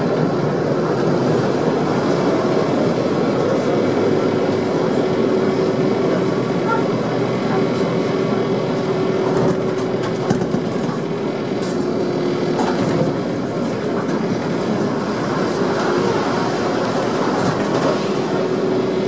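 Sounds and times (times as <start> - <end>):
tram running hum: 0.0 - 19.0.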